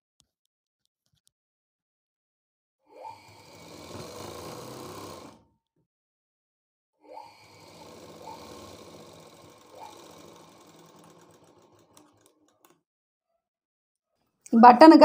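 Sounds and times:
sewing machine stitching: 3.1s - 5.4s, 7.1s - 12.8s.

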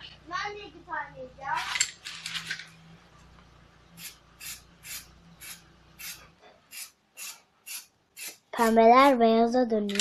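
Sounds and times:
spray paint can hissing: 4.0s - 8.4s.

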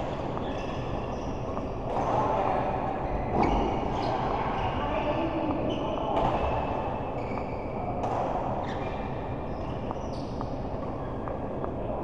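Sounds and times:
shoes squeaking on court floor: 0.0s - 2.1s, 3.0s - 12.0s.

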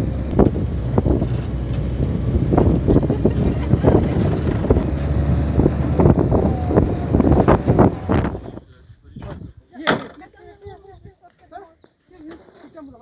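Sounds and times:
vehicle engine rumble: 0.0s - 9.6s
wind buffeting microphone: 0.0s - 9.8s.

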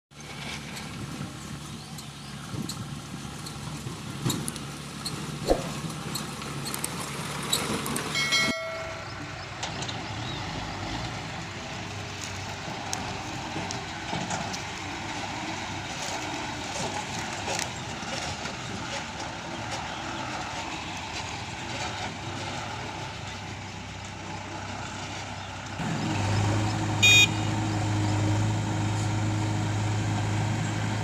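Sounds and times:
diesel truck engine running: 0.2s - 31.0s
truck horn toot: 27.0s - 27.8s.

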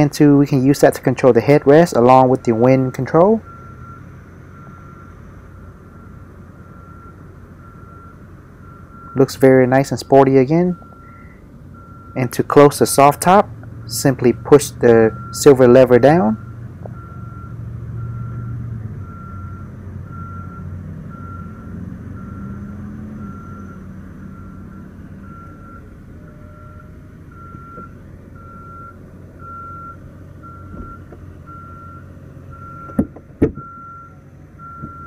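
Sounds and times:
convertible roof motor hum: 0.0s - 35.0s
electronic beep: 10.0s - 11.4s.

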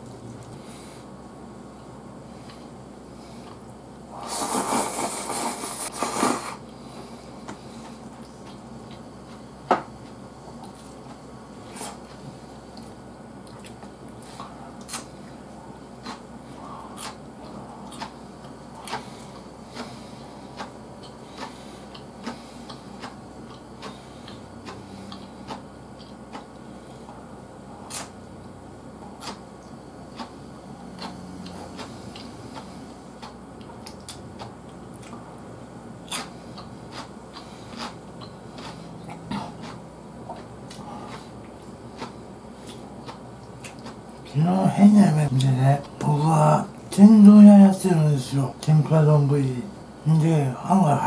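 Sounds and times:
faint low hum: 0.0s - 51.0s
loud slurping of noodles: 4.1s - 6.6s
quiet chewing: 7.4s - 11.2s, 11.8s - 44.3s.

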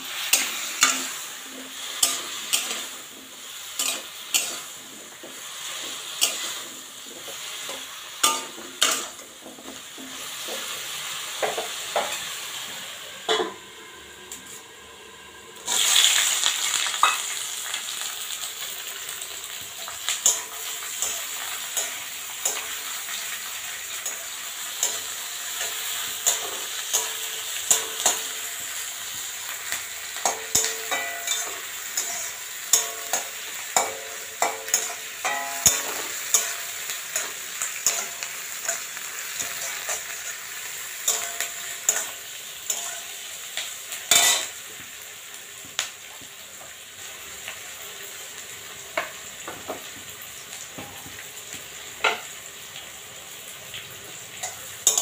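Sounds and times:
metal spatula scraping a pan: 0.0s - 9.3s, 30.2s - 43.2s, 44.1s - 44.6s, 54.4s - 55.0s
food sizzling in a pan: 0.0s - 55.0s.

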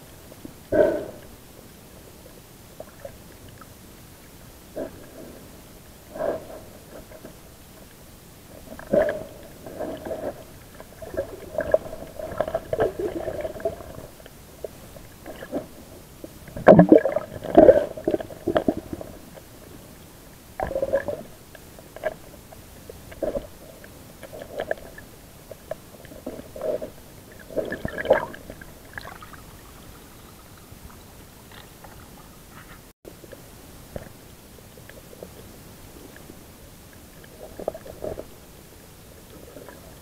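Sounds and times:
underwater gurgling and bubbling: 8.5s - 19.8s, 20.5s - 32.3s.

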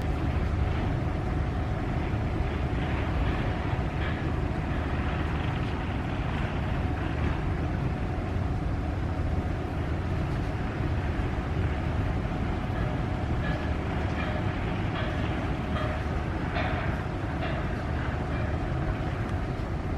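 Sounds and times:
ship diesel engine rumbling: 0.0s - 19.9s.

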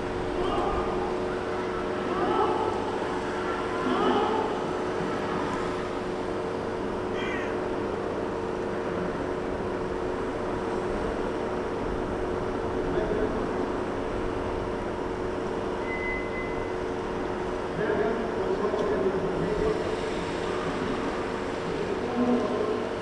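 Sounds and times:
machine drone: 0.0s - 17.7s
high whistle-like tone: 15.8s - 16.7s
brief high squeak: 15.8s - 16.8s.

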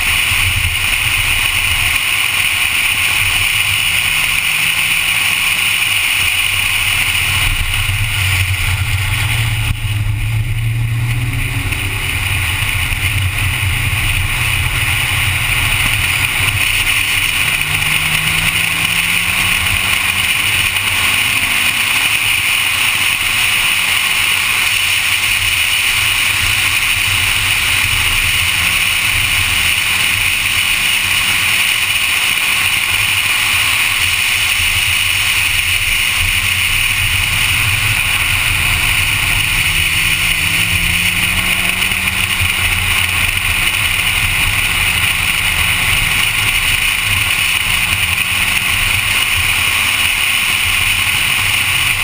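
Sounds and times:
car engine running hard: 0.0s - 52.0s
wind and road noise: 0.0s - 52.0s.

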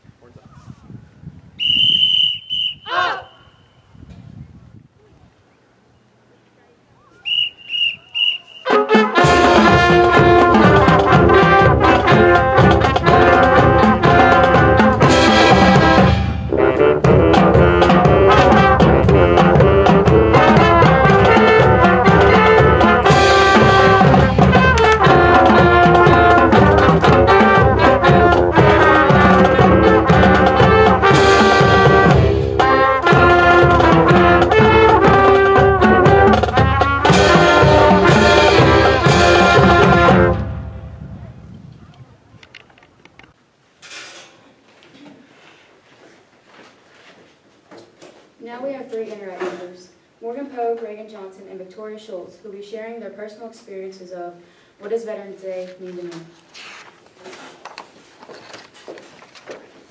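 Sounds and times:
marching band playing: 7.3s - 41.4s.

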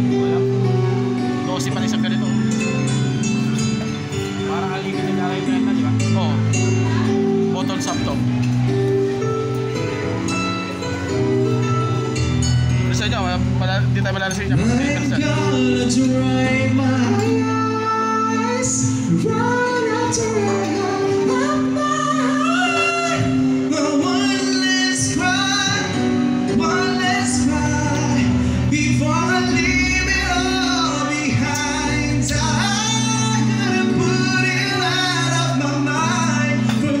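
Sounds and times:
live band playing: 0.0s - 37.0s
woman singing: 14.6s - 25.9s.

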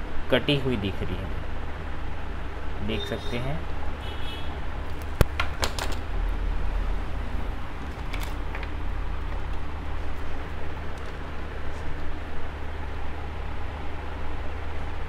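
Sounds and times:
steady low rumble: 6.0s - 15.0s.

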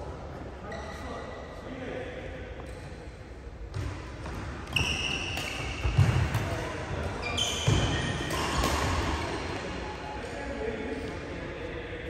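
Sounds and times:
racket hitting shuttlecock: 3.7s - 9.8s
shoes squeaking on court: 3.8s - 9.0s.

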